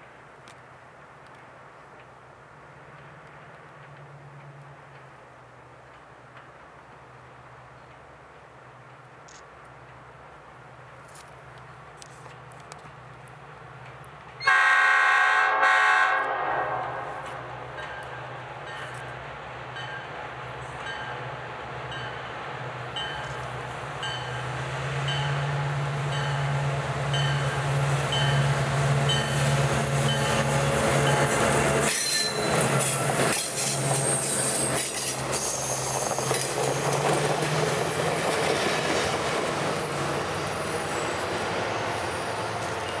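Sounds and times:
train wheels rumbling and clattering: 0:00.0 - 0:14.4, 0:16.7 - 0:43.0
diesel locomotive engine drone: 0:00.0 - 0:43.0.

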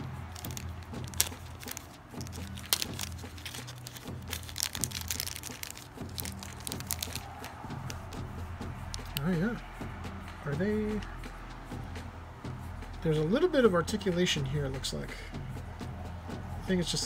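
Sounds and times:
plastic bag crinkling: 0:00.0 - 0:08.1, 0:08.9 - 0:09.2.

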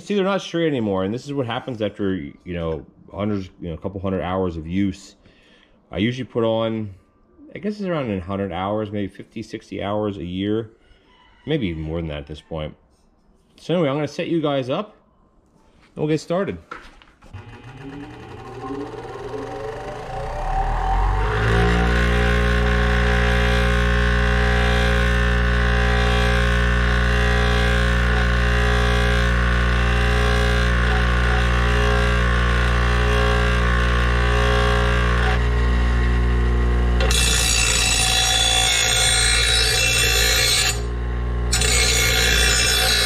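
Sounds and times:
bench grinder motor hum: 0:17.3 - 0:43.0.

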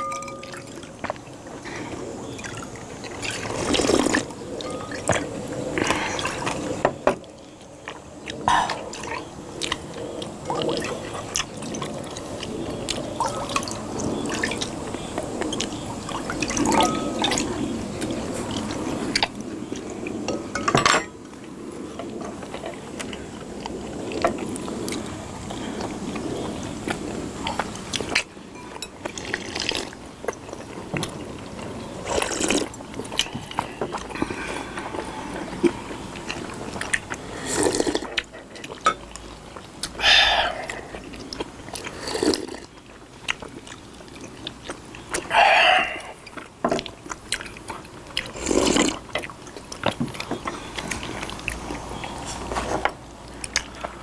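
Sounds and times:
metal ladle clinking on glass: 0:00.0 - 0:00.8.

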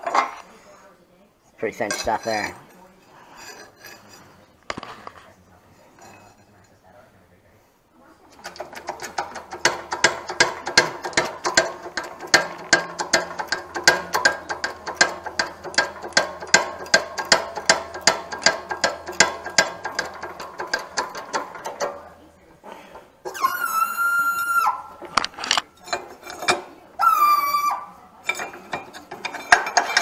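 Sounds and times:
ratchet clicking rapidly: 0:08.4 - 0:22.0.

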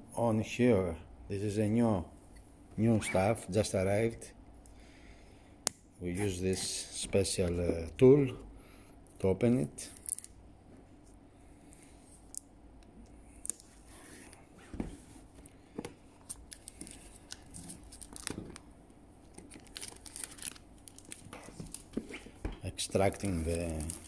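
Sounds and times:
plastic crinkling: 0:16.2 - 0:18.6, 0:19.2 - 0:24.0
shrink-wrap being cut and peeled: 0:19.3 - 0:21.8, 0:23.1 - 0:24.0.

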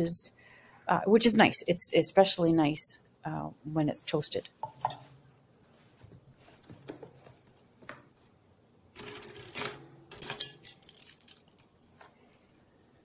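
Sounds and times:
metal measuring spoons rattling: 0:09.0 - 0:11.7.

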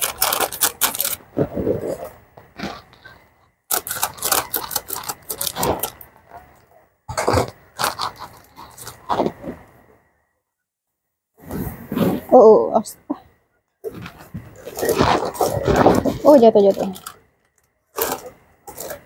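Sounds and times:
plastic packaging crinkling: 0:00.0 - 0:01.3, 0:03.7 - 0:06.1, 0:13.9 - 0:19.0.

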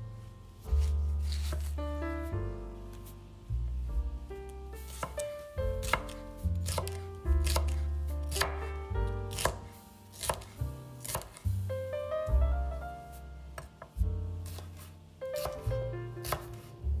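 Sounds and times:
piano music: 0:00.0 - 0:17.0
knife chopping on cutting board: 0:00.8 - 0:01.7, 0:04.9 - 0:08.7, 0:09.3 - 0:11.5, 0:13.6 - 0:16.7.

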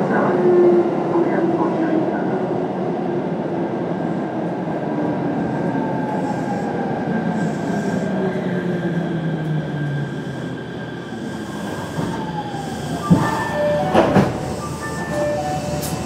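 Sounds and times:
wheel and rail noise: 0:07.6 - 0:16.0.

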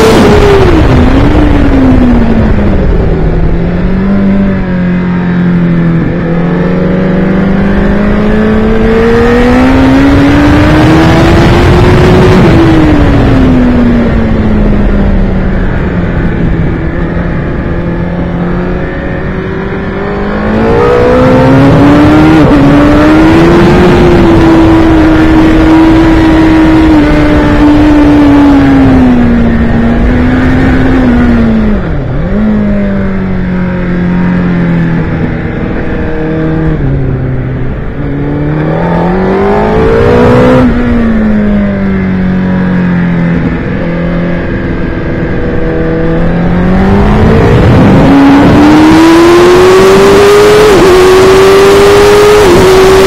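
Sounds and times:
motorcycle engine at speed: 0:00.0 - 0:53.0
wind rushing over microphone: 0:00.0 - 0:53.0.

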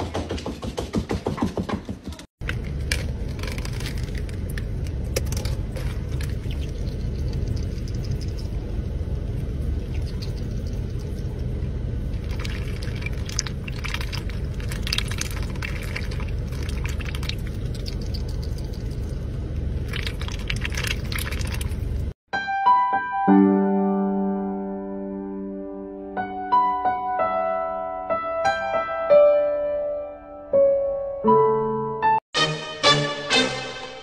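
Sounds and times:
ice clicking and splashing: 0:02.4 - 0:08.6, 0:12.2 - 0:19.1, 0:19.8 - 0:22.1
duck dabbling in iced drink: 0:05.3 - 0:08.6, 0:12.2 - 0:19.2, 0:19.9 - 0:21.9.

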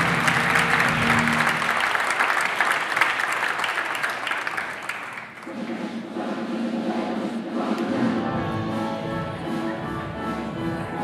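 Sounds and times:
music: 0:00.0 - 0:01.8, 0:05.4 - 0:11.0
audience applauding: 0:00.0 - 0:05.5.

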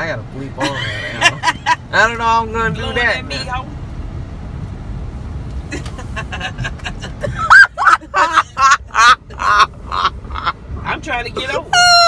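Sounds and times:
car road rumble: 0:00.0 - 0:12.0
woman laughing: 0:00.6 - 0:01.8, 0:05.7 - 0:10.6.

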